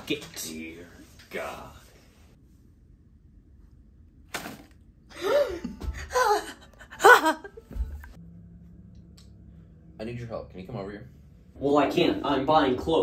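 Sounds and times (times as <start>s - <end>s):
person laughing gasps: 5.1s - 7.1s.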